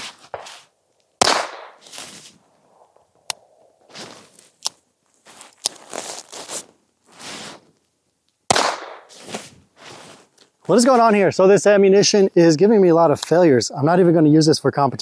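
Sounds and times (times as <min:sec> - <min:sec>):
handling rustle: 0:00.0 - 0:01.1, 0:01.8 - 0:08.0, 0:09.0 - 0:11.2
loud gunshot: 0:01.2 - 0:01.8, 0:08.5 - 0:09.1.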